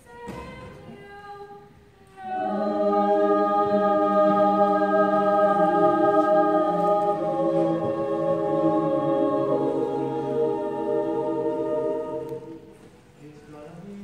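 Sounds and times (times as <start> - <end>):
choir singing a chord: 2.1 - 13.0.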